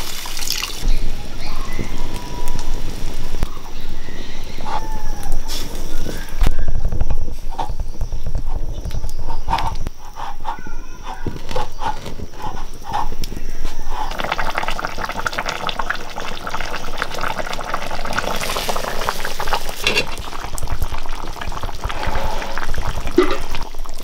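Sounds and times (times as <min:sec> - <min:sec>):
curry bubbling in a pan: 0:12.9 - 0:24.0.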